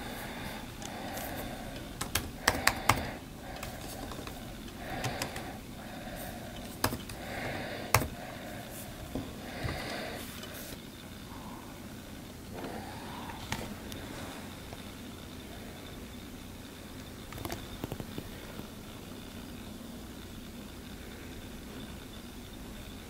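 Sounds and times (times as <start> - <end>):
laptop keys clicking: 0.8 - 5.6, 6.2 - 8.2, 17.2 - 18.6.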